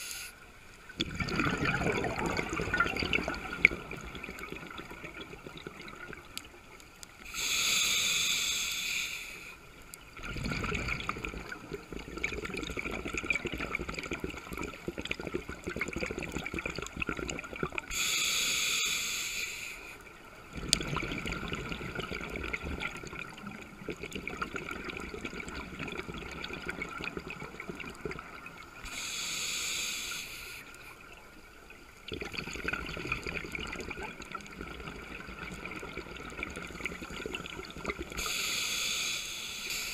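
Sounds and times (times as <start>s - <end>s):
bubbling rumble: 1.0s - 6.4s, 10.1s - 17.9s, 20.4s - 28.8s, 32.1s - 38.2s
diver breathing through regulator: 7.3s - 9.6s, 17.9s - 20.0s, 28.8s - 30.8s, 38.2s - 39.9s.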